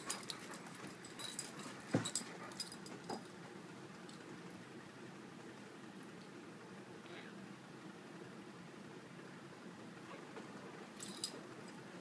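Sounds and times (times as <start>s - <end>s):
jingling clicks: 0.0s - 3.3s.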